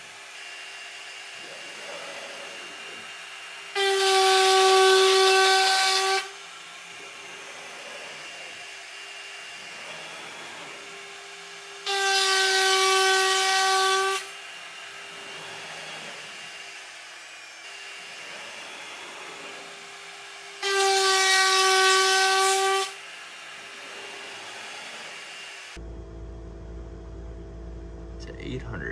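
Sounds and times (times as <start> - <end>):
router bit cutting wood howl: 0.0 - 25.8
spindle whine: 25.8 - 28.9.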